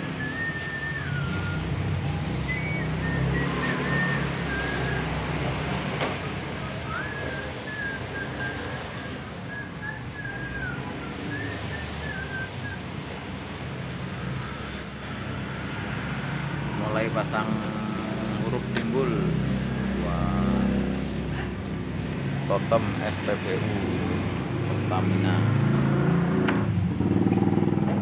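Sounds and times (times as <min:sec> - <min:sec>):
thin wavering whistled tone: 0:00.0 - 0:01.7, 0:02.4 - 0:05.3
low traffic rumble: 0:00.0 - 0:28.0.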